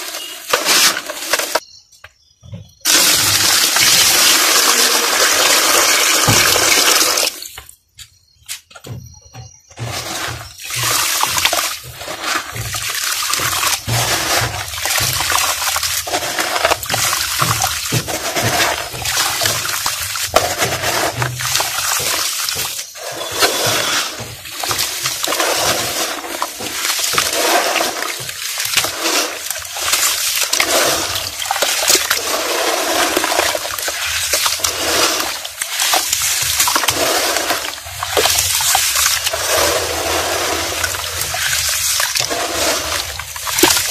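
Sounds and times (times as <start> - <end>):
dirt crumbling into water: 2.8 - 7.7, 9.8 - 43.9
hands sloshing muddy water: 9.8 - 43.9.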